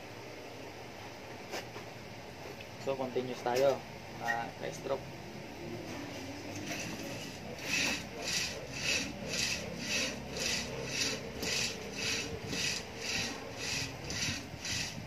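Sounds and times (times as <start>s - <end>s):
rope rasping through pulley: 6.6s - 15.0s.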